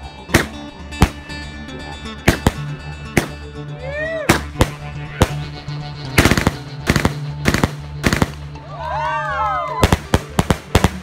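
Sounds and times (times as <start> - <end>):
music: 0.0 - 11.0
firework bangs: 2.3 - 3.4, 6.2 - 8.6, 9.8 - 11.0.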